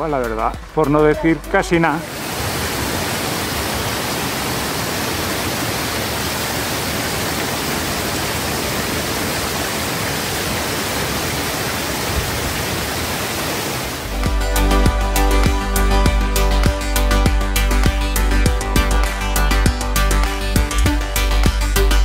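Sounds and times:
music: 0.0 - 2.1, 14.1 - 22.0
waterfall rushing: 1.0 - 14.8.

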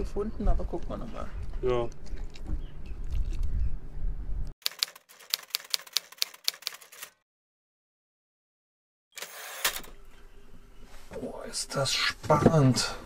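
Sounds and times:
typewriter key clacks: 4.6 - 7.2.

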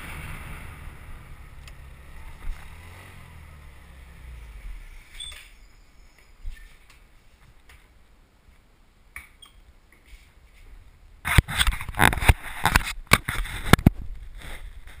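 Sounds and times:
camera handling rumble and thumps: 11.2 - 15.0.

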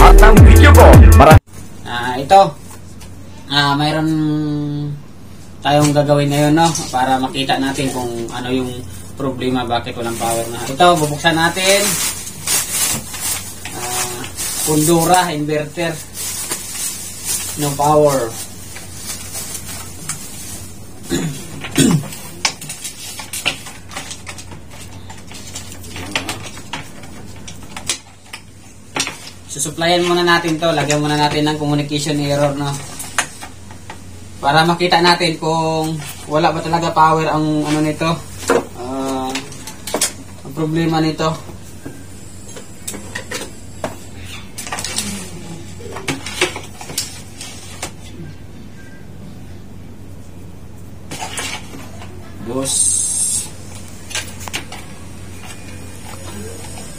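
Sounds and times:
steady low hum: 0.0 - 56.9
wires and connectors rattling: 21.5 - 33.6.

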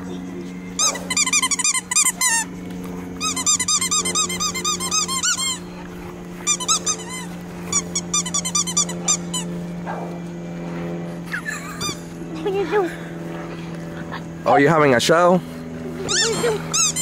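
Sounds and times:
steady low hum: 0.0 - 17.0
rubber ball squeaking: 0.8 - 2.5, 3.2 - 5.7, 6.4 - 9.5, 16.0 - 17.0.

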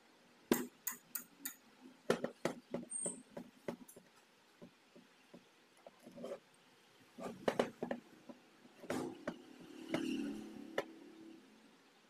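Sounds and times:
metal clicks of valve tools: 0.8 - 1.6.

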